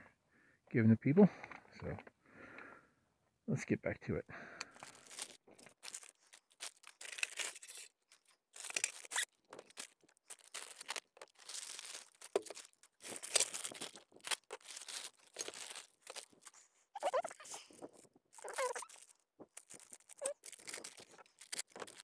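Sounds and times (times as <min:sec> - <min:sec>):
plastic bags crinkling and tearing: 0:04.7 - 0:22.0.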